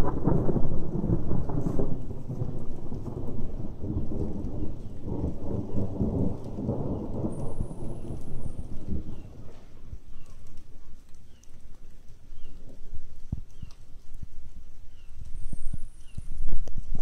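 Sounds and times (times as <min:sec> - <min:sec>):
rolling thunder rumble: 0:00.0 - 0:10.7.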